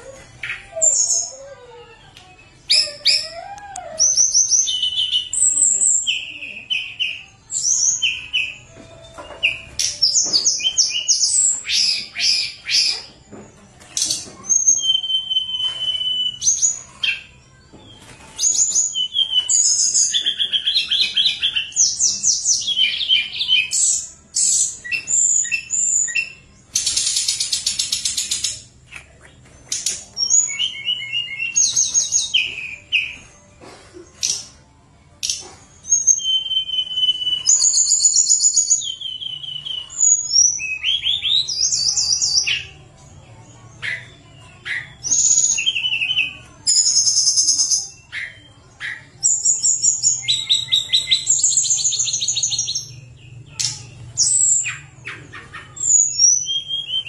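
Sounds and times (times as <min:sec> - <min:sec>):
songbird whistling and trilling: 0:00.0 - 0:01.4, 0:02.7 - 0:13.2, 0:14.0 - 0:17.4, 0:18.0 - 0:33.3, 0:35.2 - 0:42.8, 0:43.7 - 0:57.0.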